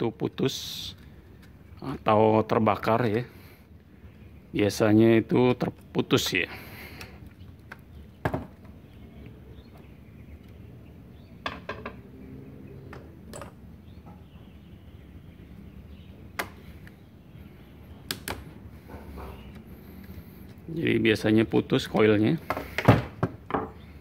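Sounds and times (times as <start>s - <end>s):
steady low background hum: 0.0s - 24.0s
tools handled on wooden bench: 11.4s - 12.1s, 22.4s - 23.8s.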